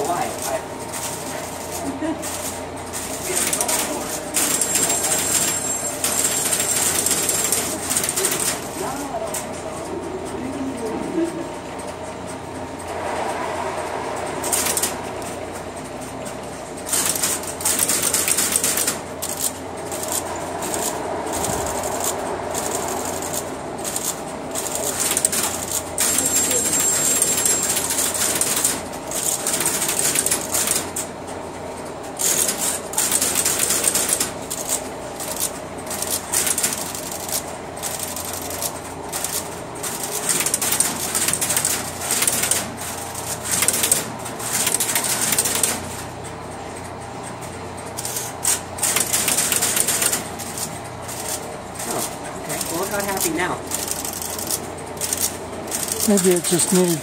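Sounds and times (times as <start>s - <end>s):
relays clicking and clattering: 14.4s - 57.0s.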